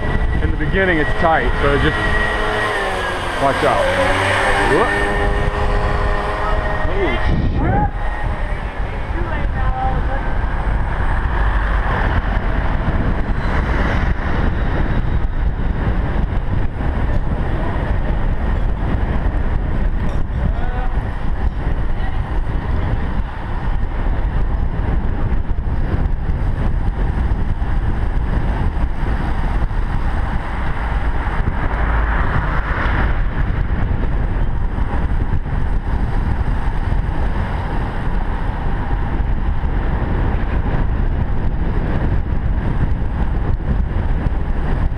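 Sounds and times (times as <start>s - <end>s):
wind rushing over microphone: 0.0s - 44.9s.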